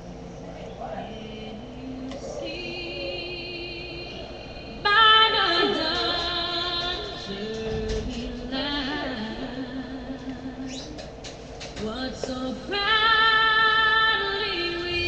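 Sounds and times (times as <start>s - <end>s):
music: 14.2s - 15.0s.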